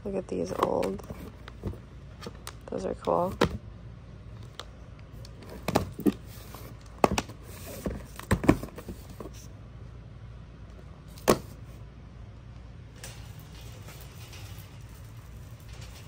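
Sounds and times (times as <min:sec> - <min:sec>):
low steady hum: 0:00.0 - 0:16.0
objects clicking and knocking: 0:13.0 - 0:16.0.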